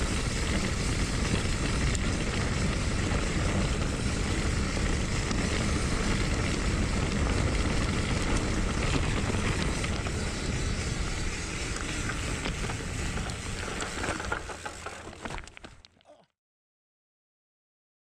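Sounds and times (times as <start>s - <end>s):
wind rushing over microphone: 0.0s - 14.3s
clicks and rattles: 12.1s - 16.0s.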